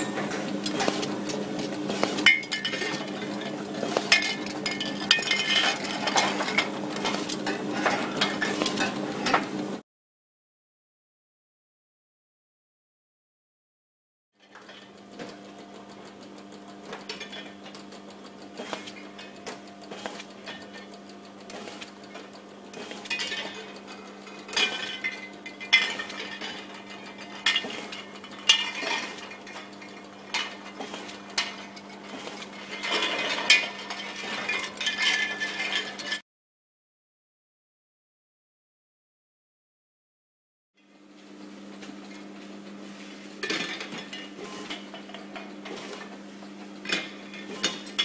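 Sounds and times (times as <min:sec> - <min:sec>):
labelling machine humming: 0:00.0 - 0:09.8
glass containers clinking: 0:02.0 - 0:09.0, 0:24.4 - 0:36.2.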